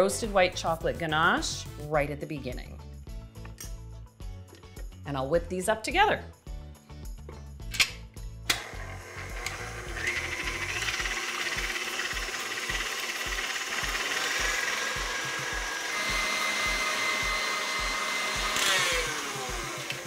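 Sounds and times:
stand mixer motor whirring: 0:08.6 - 0:20.0.

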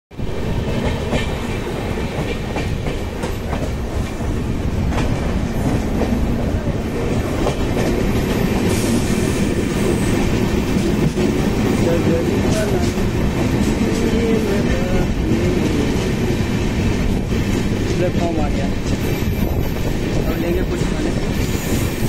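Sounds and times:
train wheels rumbling on track: 0:00.1 - 0:22.0
wheels clacking over rail joints: 0:00.6 - 0:06.4.

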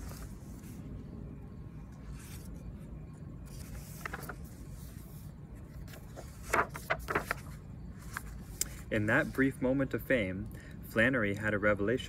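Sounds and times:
paper rustling and page turning: 0:00.0 - 0:00.9, 0:01.8 - 0:09.4
low background rumble: 0:00.0 - 0:11.2.

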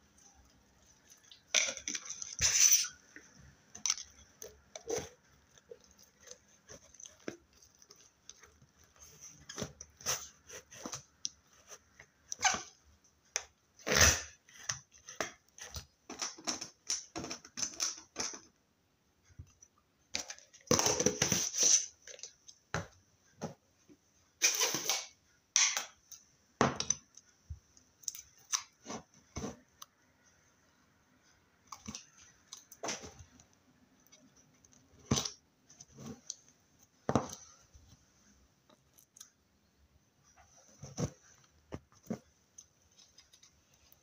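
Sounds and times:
slime squishing: 0:00.0 - 0:12.7.

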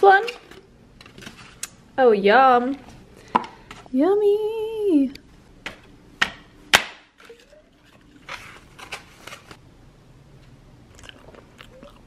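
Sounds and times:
packaging rustling: 0:07.2 - 0:09.6.

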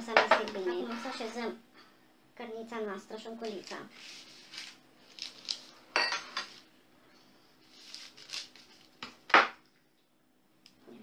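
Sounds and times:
baking paper rustling: 0:03.4 - 0:06.7, 0:07.6 - 0:09.0
glass bowl clinking on table: 0:06.0 - 0:06.5.

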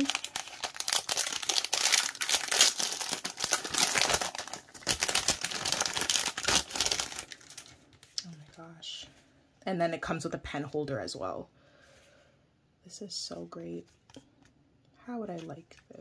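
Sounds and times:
plastic packaging crinkling: 0:00.0 - 0:08.3.

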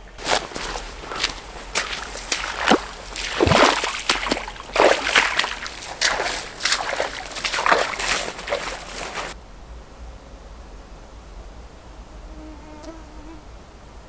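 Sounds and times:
footsteps squelching through bog: 0:00.0 - 0:09.4.

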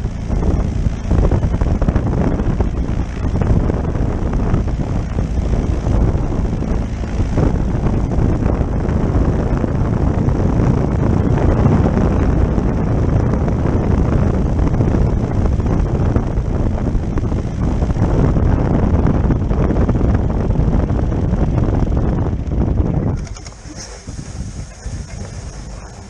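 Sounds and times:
small aircraft engine running: 0:00.0 - 0:26.0.

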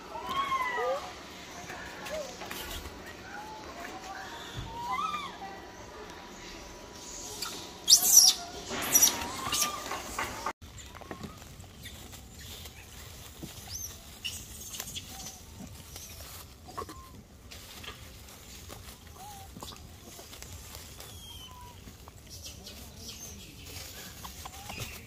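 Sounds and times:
monkeys screeching: 0:00.0 - 0:05.6, 0:07.0 - 0:12.1, 0:13.6 - 0:17.2, 0:18.9 - 0:23.4
soft monkey calls: 0:00.0 - 0:25.0.

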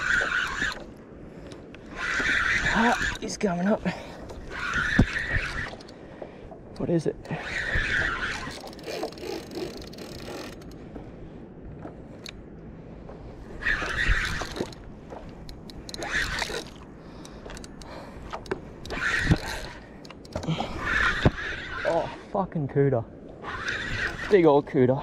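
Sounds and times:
fishing reel scraping: 0:00.0 - 0:00.9, 0:01.8 - 0:06.0, 0:06.8 - 0:10.8, 0:13.5 - 0:22.3, 0:23.4 - 0:24.6.

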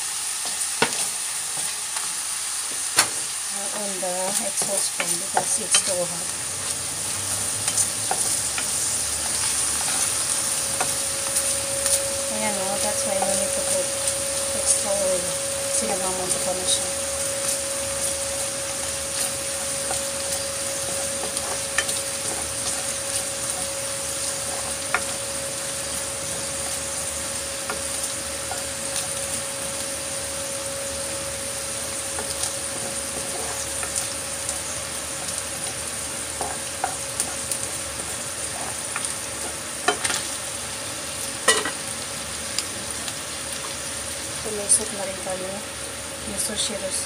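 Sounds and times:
exhaust fan humming: 0:00.0 - 0:47.0
meat sizzling in frying pan: 0:00.0 - 0:47.0
spatula scraping pan: 0:32.2 - 0:34.0.

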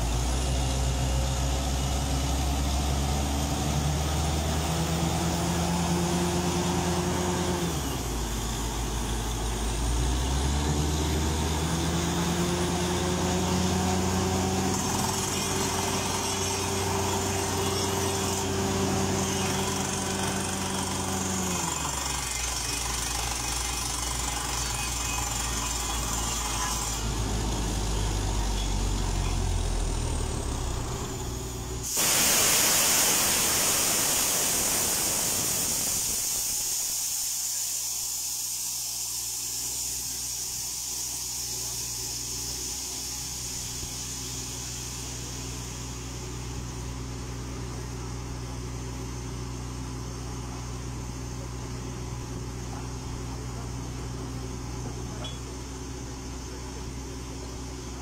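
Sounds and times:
drilling rig engine droning: 0:00.0 - 0:37.8
compressed air hissing: 0:30.9 - 0:46.3.

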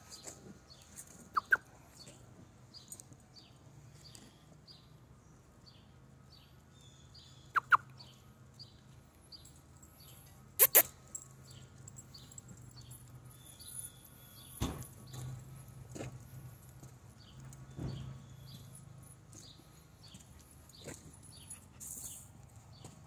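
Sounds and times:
small bird chirping: 0:00.1 - 0:02.2, 0:06.3 - 0:15.2
dog yipping: 0:01.3 - 0:01.6, 0:07.6 - 0:07.9, 0:10.6 - 0:10.9
thump: 0:14.6 - 0:15.0.

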